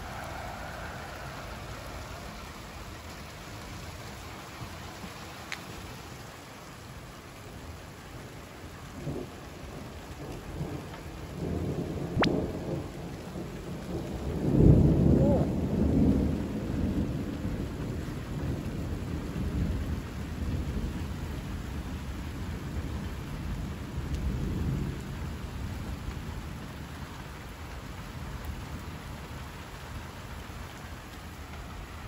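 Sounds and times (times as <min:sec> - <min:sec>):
thunder rumbling: 0:00.0 - 0:04.8, 0:08.9 - 0:26.8
heavy rain hissing: 0:00.0 - 0:32.0
sharp thunder crack: 0:11.5 - 0:12.8.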